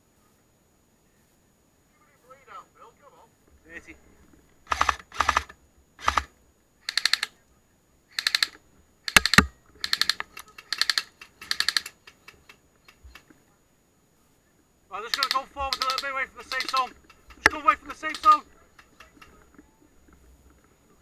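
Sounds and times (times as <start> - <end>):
airsoft machine gun bursts: 4.7 - 7.3, 8.1 - 12.4, 15.0 - 18.4.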